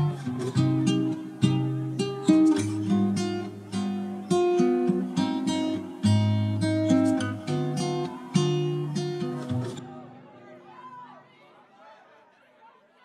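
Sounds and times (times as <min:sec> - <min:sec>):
acoustic guitar strumming and plucking: 0:00.0 - 0:10.3.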